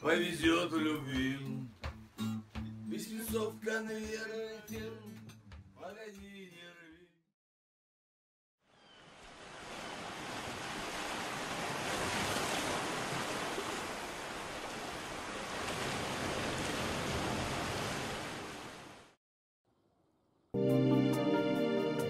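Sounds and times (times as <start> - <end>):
music: 0.0 - 7.2, 20.6 - 22.0
sea waves washing: 9.0 - 19.1.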